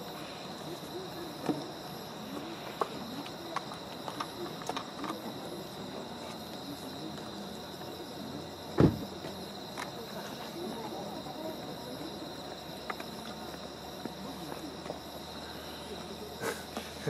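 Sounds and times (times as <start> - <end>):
faint voices murmuring: 0.0 - 17.0
insects chirping: 0.0 - 17.0
dull thump: 8.8 - 9.1.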